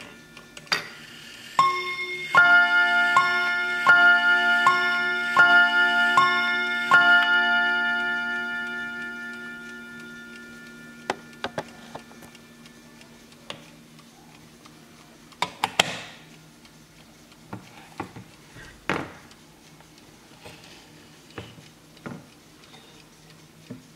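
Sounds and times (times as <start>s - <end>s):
mantel clock chiming: 0.0s - 15.4s.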